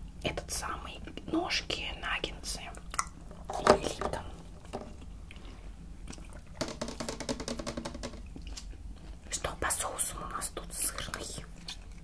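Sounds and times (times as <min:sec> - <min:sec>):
wet chewing and mouth sounds: 0:02.6 - 0:03.4, 0:04.6 - 0:06.6, 0:08.2 - 0:09.3, 0:10.5 - 0:12.0.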